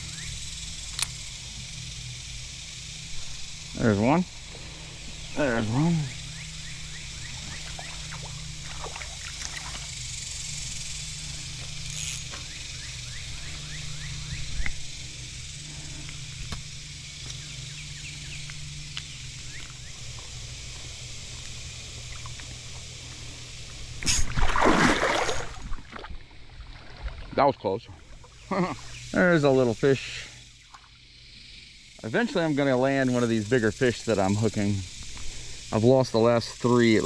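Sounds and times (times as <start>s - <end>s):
shallow river water flowing: 4.4s - 16.4s, 21.1s - 29.0s, 30.4s - 31.1s
fish splashing into river: 24.0s - 27.4s.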